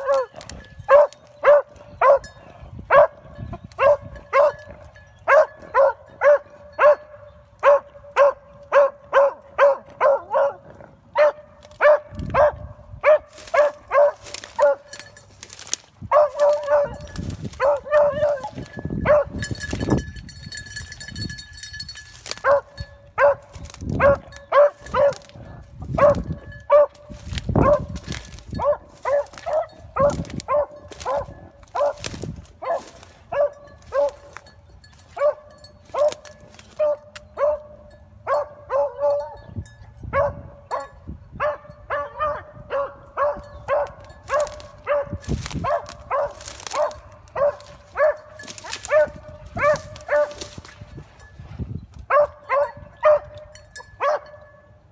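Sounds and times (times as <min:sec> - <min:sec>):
dry brush crackling: 0:00.0 - 0:02.2, 0:13.1 - 0:20.0, 0:20.8 - 0:22.8, 0:23.4 - 0:37.3, 0:43.9 - 0:51.0
dog baying: 0:16.1 - 0:19.3.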